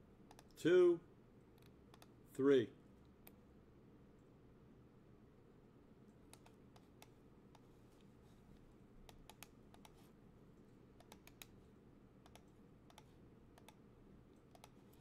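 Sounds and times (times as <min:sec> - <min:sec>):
low room hum: 0:00.0 - 0:15.0
keyboard and mouse clicks: 0:00.3 - 0:00.6, 0:01.6 - 0:02.2, 0:06.3 - 0:07.7, 0:09.0 - 0:10.0, 0:11.0 - 0:11.6, 0:12.2 - 0:13.8, 0:14.4 - 0:15.0.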